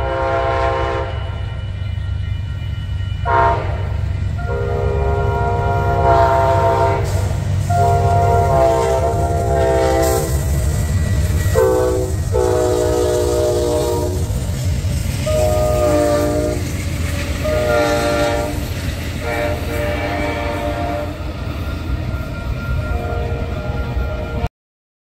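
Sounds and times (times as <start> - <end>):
locomotive air horn blasts: 0.0 - 1.4, 3.2 - 10.5, 11.5 - 14.4, 15.2 - 16.8, 17.4 - 21.2, 22.8 - 24.5
train rumbling past: 0.0 - 24.5.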